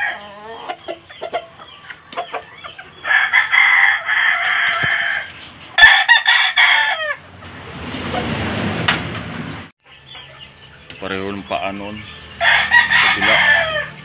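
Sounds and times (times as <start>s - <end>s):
rooster crowing: 0.0s - 0.7s, 3.0s - 7.3s, 12.2s - 14.0s
soft clucking: 0.2s - 3.0s.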